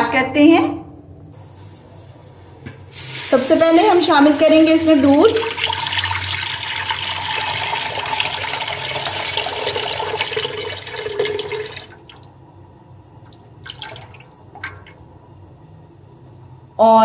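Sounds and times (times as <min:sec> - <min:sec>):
drips and splashes: 0:04.8 - 0:12.3, 0:13.2 - 0:15.0
milk pouring into metal pot: 0:05.0 - 0:12.2, 0:13.3 - 0:15.0.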